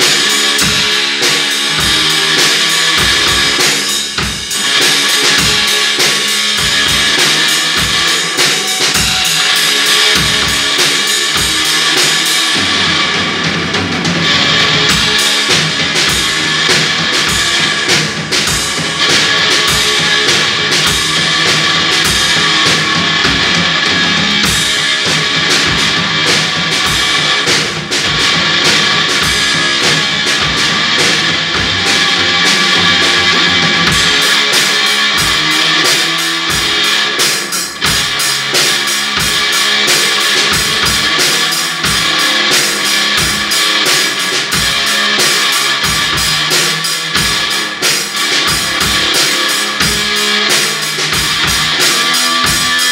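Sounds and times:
drum kit beat: 0.0s - 52.9s
electric guitar: 0.0s - 52.9s.

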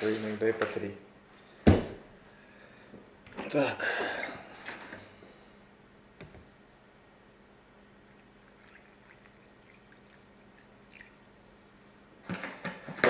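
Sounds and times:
water pouring into a glass: 8.1s - 11.6s.

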